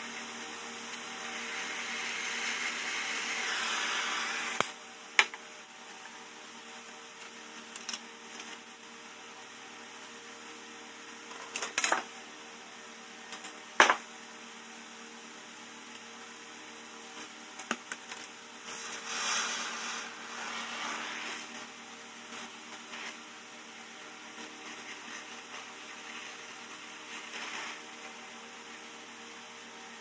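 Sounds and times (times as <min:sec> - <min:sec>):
welding torch flame hissing: 0:00.0 - 0:04.8, 0:18.5 - 0:29.0.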